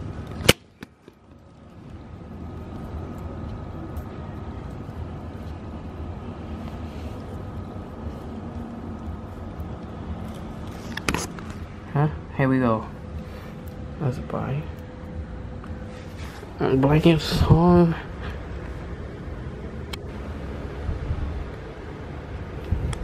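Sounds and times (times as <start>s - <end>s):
low rumble: 1.4s - 23.0s.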